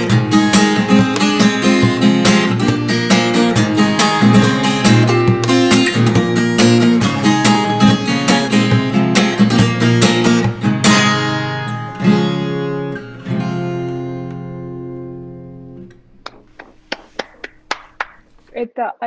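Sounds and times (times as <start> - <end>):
acoustic guitar fingerstyle: 0.0 - 18.6
short sharp taps: 16.2 - 18.5.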